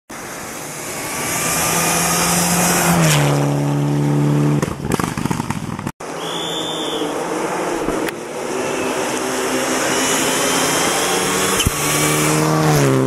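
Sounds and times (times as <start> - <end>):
rally car passing at speed: 0.2 - 4.7, 6.0 - 13.0.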